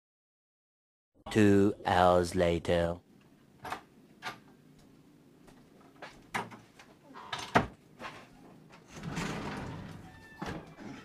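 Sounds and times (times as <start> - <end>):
sliding wardrobe door rumbling: 7.4 - 11.0.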